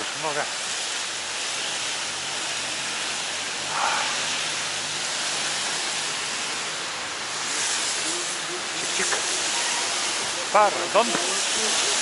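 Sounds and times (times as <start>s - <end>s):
heavy rain hiss: 0.0s - 12.0s
wet road spray: 0.0s - 12.0s.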